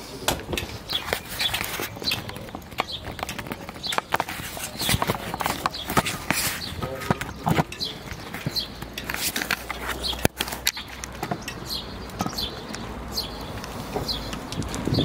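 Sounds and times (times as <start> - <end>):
footsteps on brick paving: 0.0 - 15.0.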